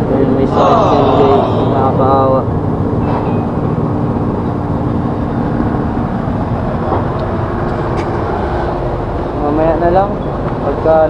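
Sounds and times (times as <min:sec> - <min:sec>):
street traffic rumble: 0:00.0 - 0:11.0
vehicle engine running nearby: 0:00.0 - 0:11.0.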